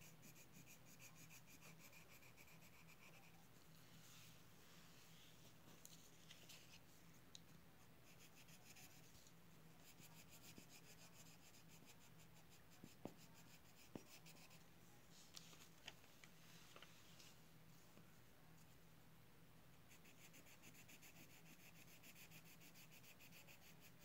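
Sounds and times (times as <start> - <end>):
drawing tool scratching on paper: 0.0 - 3.4, 8.0 - 9.2, 9.8 - 14.6, 19.9 - 24.0.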